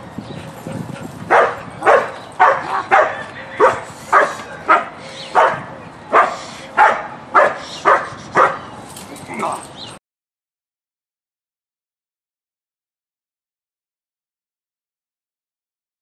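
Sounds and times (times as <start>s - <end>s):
dog barking sharply: 1.3s - 8.6s.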